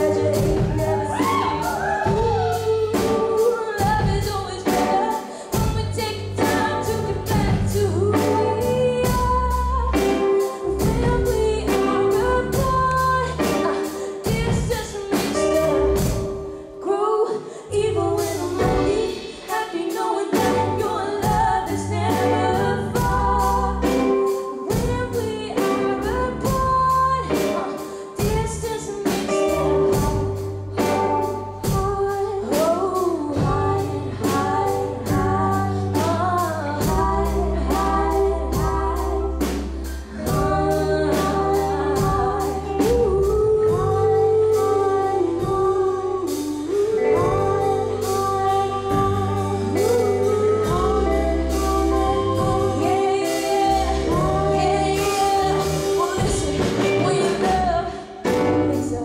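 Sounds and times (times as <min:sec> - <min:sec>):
steady drum beat: 0:00.0 - 0:16.5, 0:18.2 - 0:44.8, 0:45.4 - 0:58.9
bass notes: 0:00.0 - 0:16.6, 0:17.7 - 0:19.3, 0:20.3 - 0:27.6, 0:28.2 - 0:59.0
woman singing: 0:00.0 - 0:59.0
electric guitar: 0:20.4 - 0:59.0.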